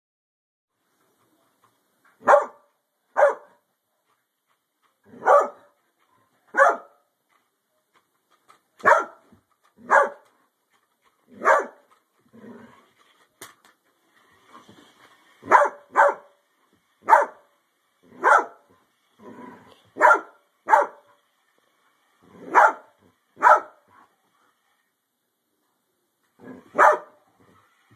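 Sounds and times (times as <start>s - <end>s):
dog barking: 2.2s - 3.6s, 5.1s - 5.7s, 6.5s - 7.0s, 8.8s - 9.2s, 9.8s - 10.3s, 11.4s - 11.8s, 15.4s - 16.3s, 17.0s - 17.4s, 18.1s - 18.6s, 20.0s - 21.1s, 22.4s - 23.8s, 26.5s - 27.2s.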